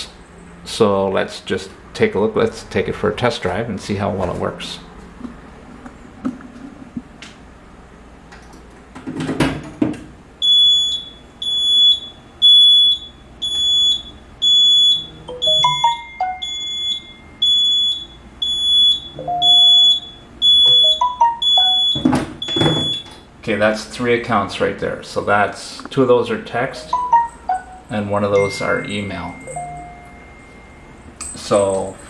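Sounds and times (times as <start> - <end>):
alarm panel beeping: 10.4 - 23.2, 26.8 - 31.0
smartphone alert chimes: 14.8 - 17.8, 18.8 - 23.0, 26.8 - 31.0.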